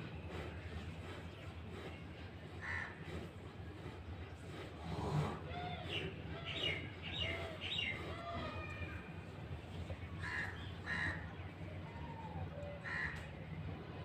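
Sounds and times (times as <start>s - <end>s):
birds chirping: 0.0s - 14.0s
crow cawing: 12.8s - 13.2s.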